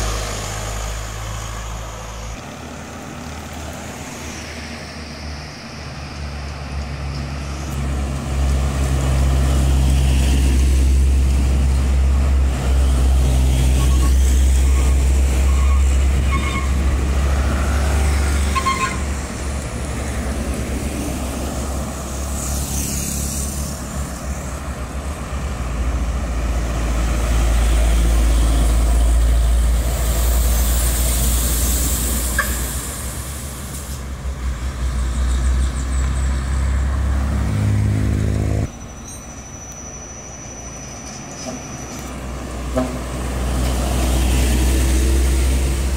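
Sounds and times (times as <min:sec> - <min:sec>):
heavy diesel trucks passing: 0:00.0 - 0:45.9
lighter vehicle hissing past: 0:21.2 - 0:25.1, 0:27.8 - 0:34.3.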